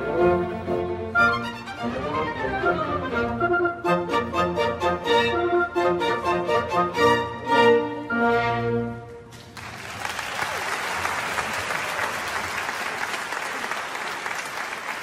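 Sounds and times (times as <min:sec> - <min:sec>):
audience applause: 0:09.5 - 0:15.0.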